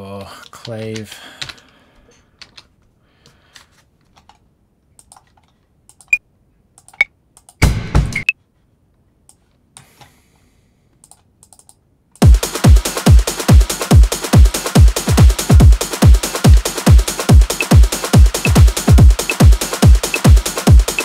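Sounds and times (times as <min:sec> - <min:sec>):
techno drum loop: 0:12.2 - 0:21.0.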